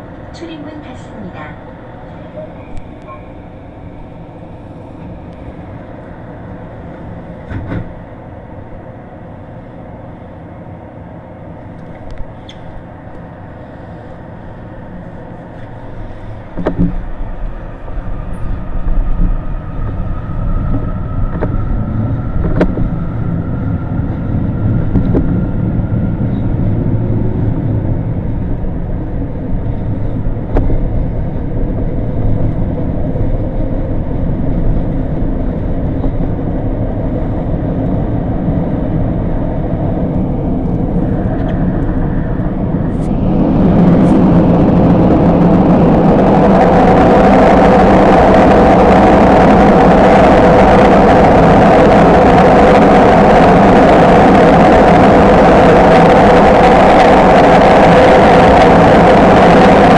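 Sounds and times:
electric train hum: 0:00.0 - 0:59.9
train wheels rumbling: 0:00.0 - 0:59.9
rising motor whine: 0:14.6 - 0:59.9.

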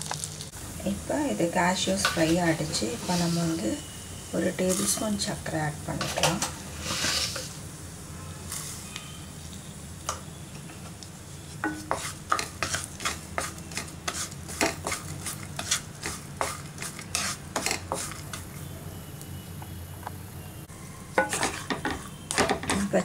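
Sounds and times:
butter sizzling: 0:00.0 - 0:05.8, 0:06.7 - 0:18.7
spatula scraping and knocking pan: 0:11.6 - 0:18.4, 0:21.2 - 0:23.0.

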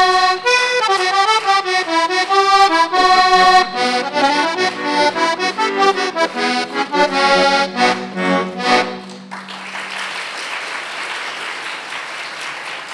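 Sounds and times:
accordion playing folk tune: 0:00.0 - 0:09.3
audience applause: 0:09.0 - 0:12.9.

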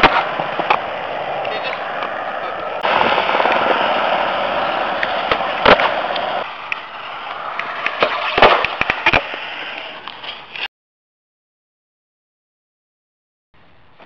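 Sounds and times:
skateboard clacking on concrete: 0:00.0 - 0:10.6.

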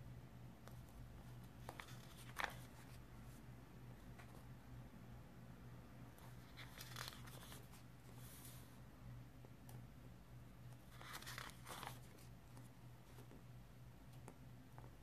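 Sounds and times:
notebook pages rustling: 0:01.2 - 0:03.4, 0:06.2 - 0:08.7, 0:10.8 - 0:13.4.

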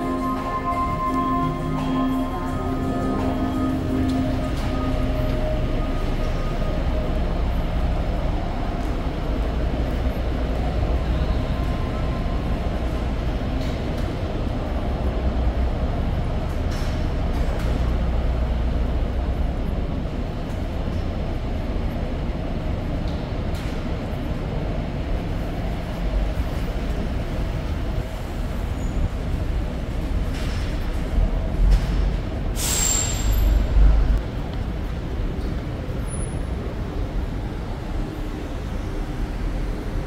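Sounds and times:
music: 0:00.0 - 0:07.2.

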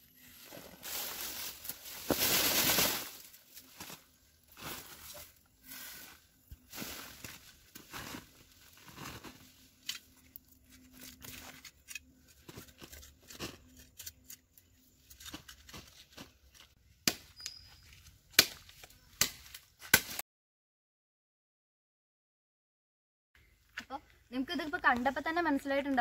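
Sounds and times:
soil crumbling: 0:00.4 - 0:05.5
roots rustling and tearing: 0:00.4 - 0:05.9.

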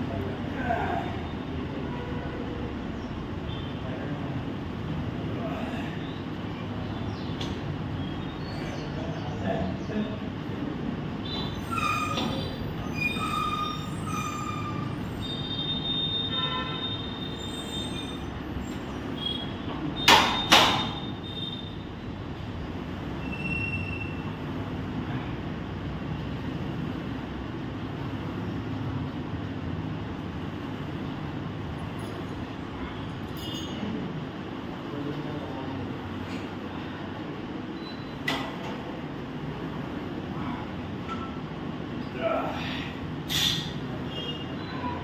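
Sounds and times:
short high squeaks: 0:11.3 - 0:16.0, 0:16.9 - 0:21.8, 0:43.3 - 0:43.8.

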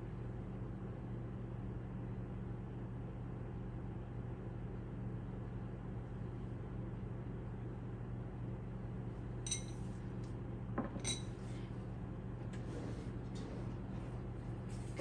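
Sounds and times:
steady low hum: 0:00.0 - 0:15.0
metal utensil clinking bowl: 0:09.5 - 0:09.8, 0:11.0 - 0:11.3.

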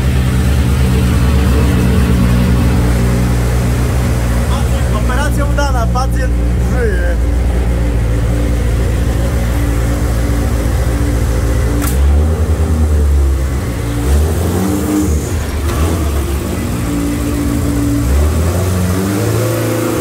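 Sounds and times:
race car engine idling: 0:00.0 - 0:20.0.

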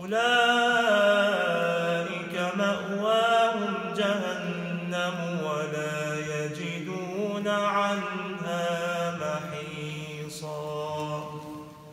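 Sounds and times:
man chanting melodic recitation: 0:00.0 - 0:11.6.

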